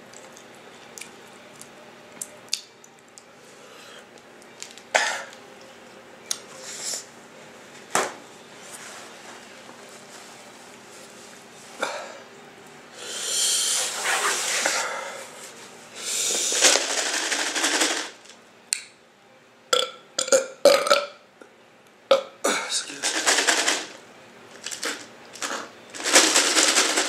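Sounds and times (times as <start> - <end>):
mouth clicks and smacks: 0.2 - 3.3
person burping: 19.8 - 21.2.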